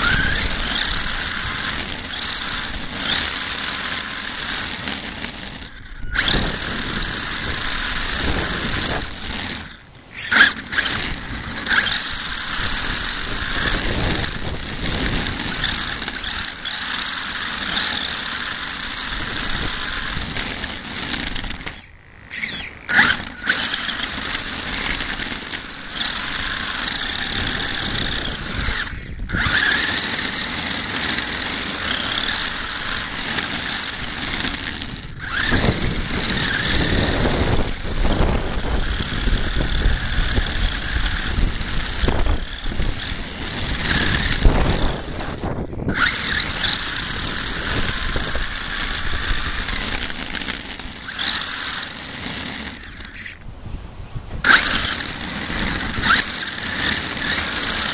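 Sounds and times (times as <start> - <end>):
toy car motor whining: 0.0 - 53.5, 54.2 - 57.9
tyre and road rumble: 0.0 - 57.9.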